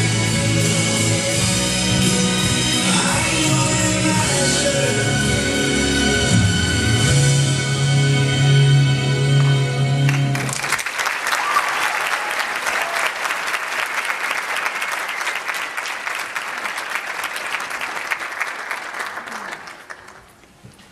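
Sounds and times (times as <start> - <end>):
audience applause: 10.1 - 20.4.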